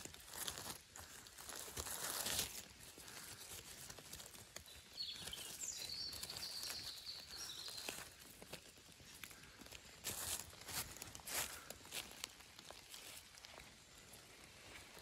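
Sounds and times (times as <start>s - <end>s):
footsteps in undergrowth: 0.0s - 15.0s
bird singing: 4.6s - 8.3s.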